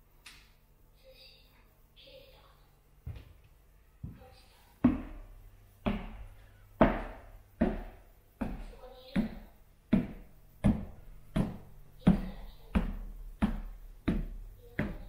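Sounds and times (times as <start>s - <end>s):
footsteps on wooden stairs: 3.1s - 15.0s.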